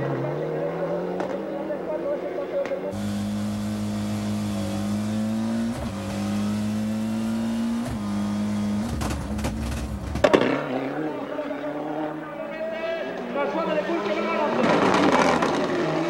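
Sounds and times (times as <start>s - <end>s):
car engine accelerating hard: 2.9s - 12.2s, 14.0s - 16.0s
sharp knocks and crack: 8.7s - 10.6s.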